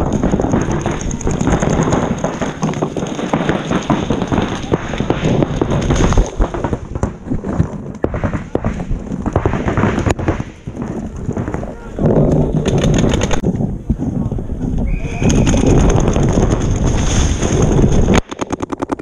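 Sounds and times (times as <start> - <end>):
paintball markers firing: 0.0 - 13.4.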